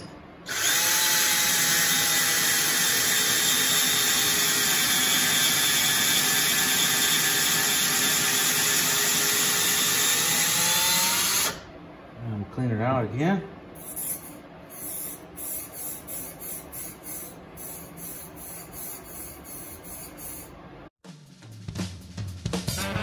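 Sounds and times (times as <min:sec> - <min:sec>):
cordless drill running: 0:00.5 - 0:11.6.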